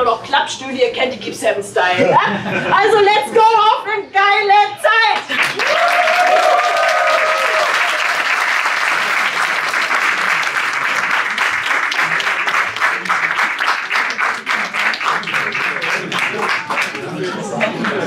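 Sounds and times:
crowd applauding: 5.2 - 18.0
person cheering: 5.6 - 8.2.

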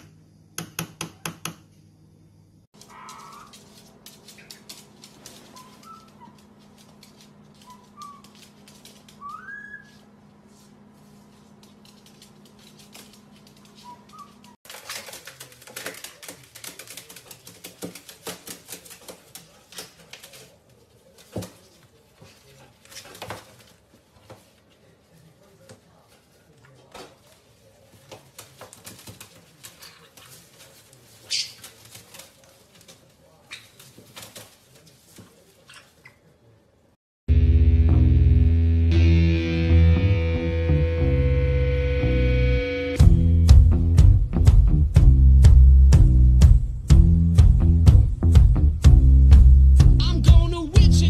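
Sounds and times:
bird feet and beaks scuffling on metal: 2.8 - 10.0
parrot chirps: 9.2 - 10.0
wing flapping: 11.8 - 20.6.

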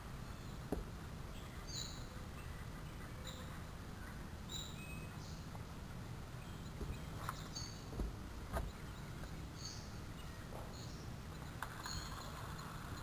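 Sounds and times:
low outdoor rumble: 0.0 - 13.0
high bird chirps: 1.3 - 5.5, 6.4 - 7.9.

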